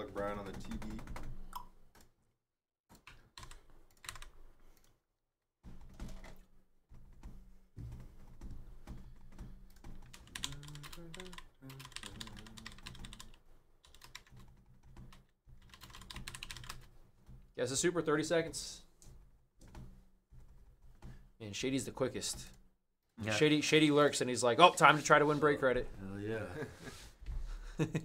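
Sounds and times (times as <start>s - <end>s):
keyboard typing clicks: 2.9s - 4.9s, 7.9s - 16.9s.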